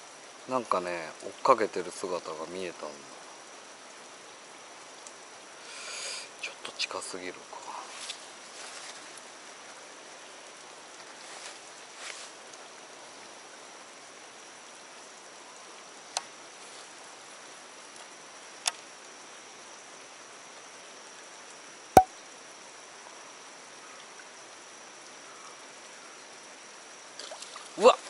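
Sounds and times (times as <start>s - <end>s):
faint hiss: 0.0s - 21.8s, 22.4s - 28.0s.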